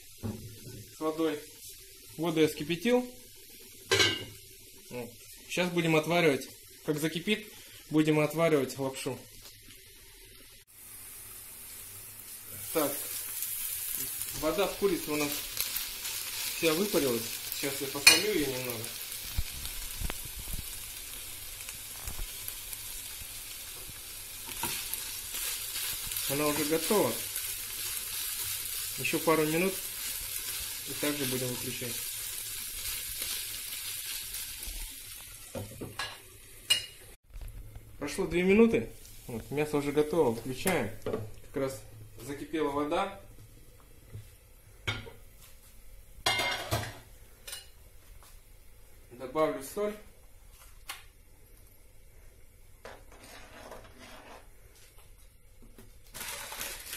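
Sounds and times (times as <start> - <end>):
chicken sizzling in frying pan: 0.0 - 37.2, 56.0 - 56.9.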